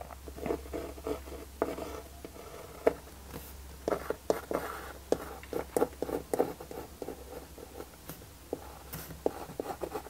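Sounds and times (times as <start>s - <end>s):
pencil scratching on plastic: 3.8s - 10.0s.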